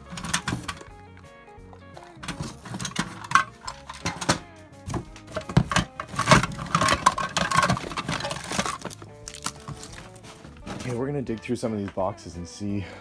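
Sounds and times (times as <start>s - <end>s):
toys and tins clattering in box: 0.0s - 0.9s, 2.0s - 11.0s.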